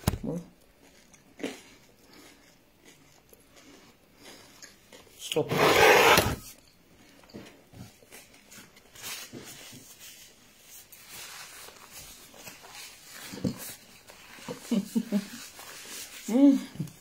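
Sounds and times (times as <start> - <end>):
soft eating mouth noises: 0.3 - 5.4
paper napkin rubbing: 5.5 - 6.4.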